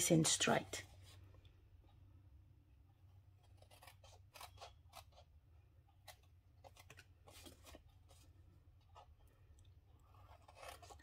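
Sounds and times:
scissors snipping cardstock: 0:03.4 - 0:07.8, 0:10.1 - 0:11.0.

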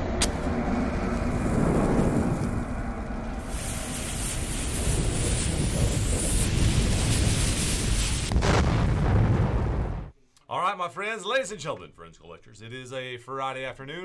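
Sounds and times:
burning fuse rumble and hiss: 0:00.4 - 0:10.1.

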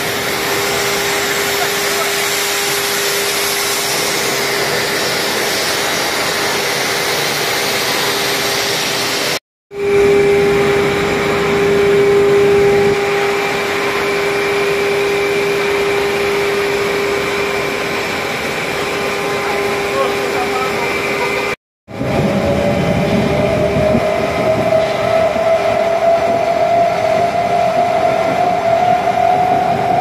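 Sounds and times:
forging press hiss: 0:00.0 - 0:09.4
machine whine: 0:00.0 - 0:30.0.

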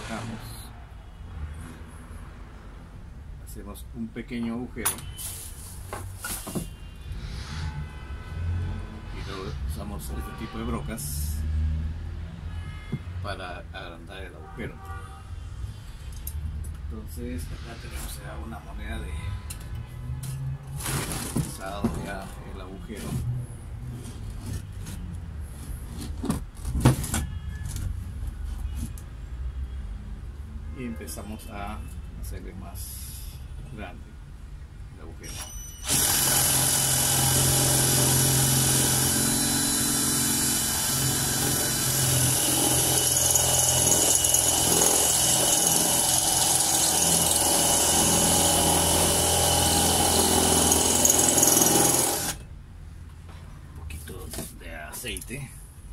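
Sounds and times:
drill cutting metal with high whine: 0:35.3 - 0:52.4.

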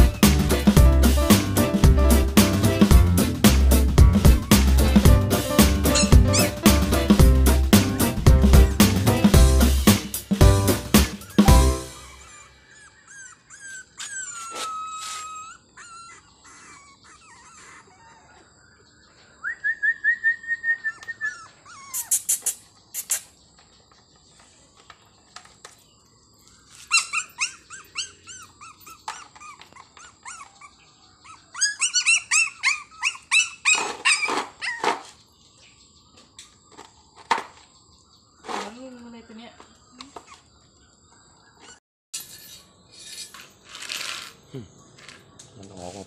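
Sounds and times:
puppies squealing and whining: 0:04.0 - 0:06.8, 0:11.0 - 0:18.6, 0:20.5 - 0:23.4, 0:26.7 - 0:35.2, 0:40.1 - 0:40.5, 0:41.5 - 0:41.8.

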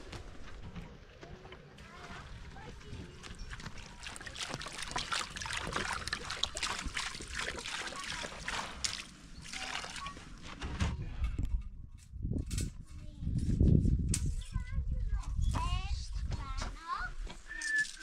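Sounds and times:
water pouring and splashing: 0:01.8 - 0:10.6.

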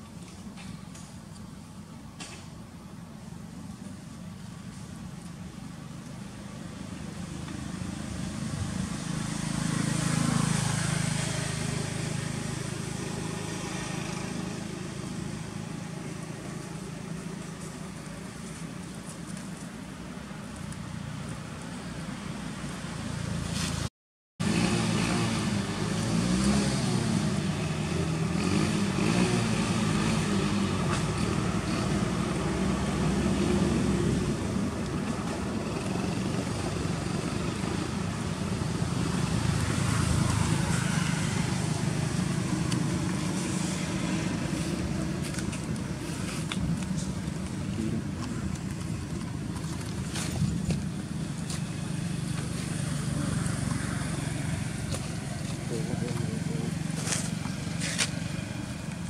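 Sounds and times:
vehicles passing on road: 0:00.0 - 0:59.0
steady engine noise: 0:24.4 - 0:59.0.

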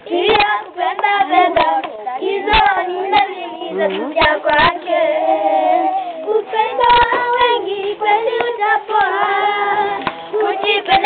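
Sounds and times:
children singing: 0:00.0 - 0:11.0
hand claps: 0:08.3 - 0:09.2, 0:09.8 - 0:11.0.

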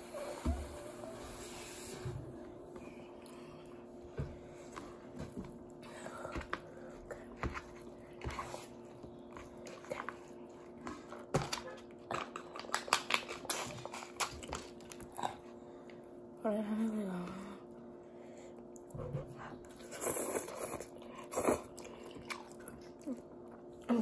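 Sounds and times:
faint steady hum: 0:00.0 - 0:24.0
chewing: 0:19.6 - 0:24.0.

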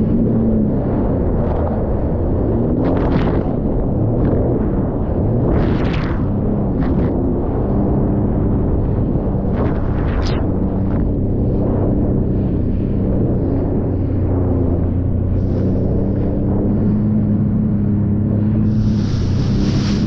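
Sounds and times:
watercraft engine running: 0:00.0 - 0:20.0
hiss of spray: 0:18.7 - 0:20.0.

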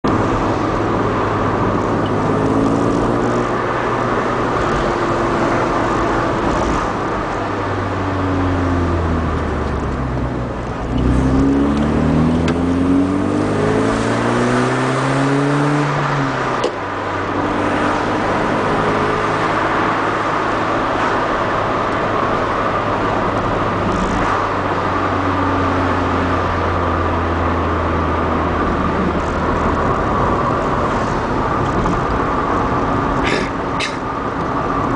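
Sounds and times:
road and tyre noise: 0:00.0 - 0:34.9
car engine revving: 0:00.1 - 0:34.9.

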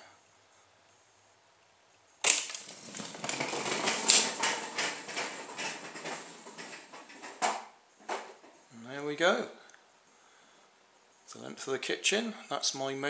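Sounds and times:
wooden wheels clattering on floor: 0:02.2 - 0:08.6.

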